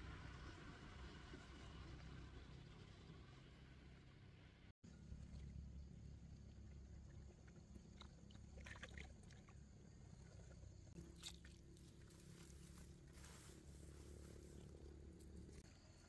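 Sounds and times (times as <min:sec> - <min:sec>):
low steady rumble: 0:00.0 - 0:16.0
water sloshing and splashing: 0:06.3 - 0:12.7.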